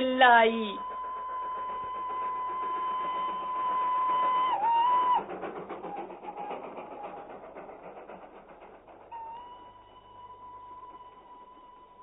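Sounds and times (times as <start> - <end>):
train whistle: 0.0 - 5.4, 9.1 - 12.0
train chugging: 0.0 - 12.0.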